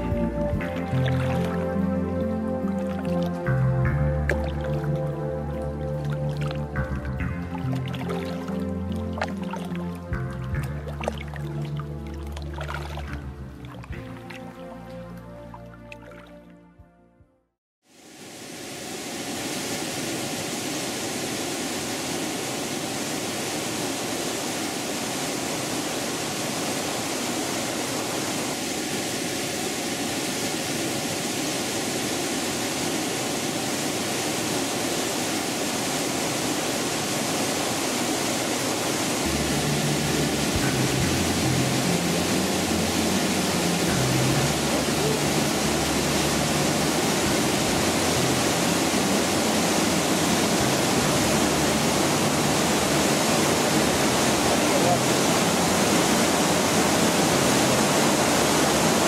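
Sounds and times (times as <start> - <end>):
waterfall roaring: 18.0 - 59.0.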